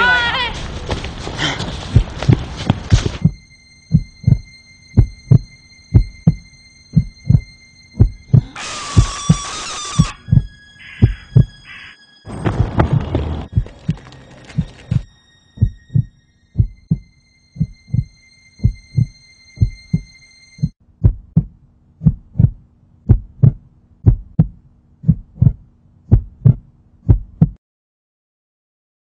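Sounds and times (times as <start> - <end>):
heartbeat thumps: 1.8 - 9.2, 10.2 - 11.6, 15.6 - 27.6.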